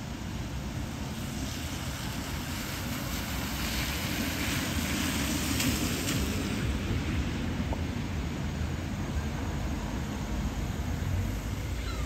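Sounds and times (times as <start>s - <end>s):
tyre hiss on wet road: 0.0s - 12.0s
bus engine hum: 7.4s - 12.0s.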